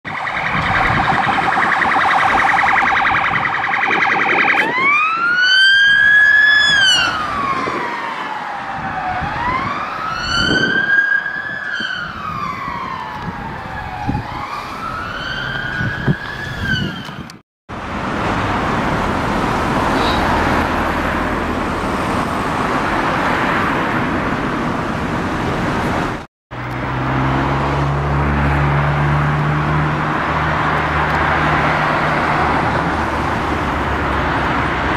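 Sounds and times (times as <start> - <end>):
steady outdoor noise: 0.0 - 34.9
police siren wailing: 0.1 - 17.3.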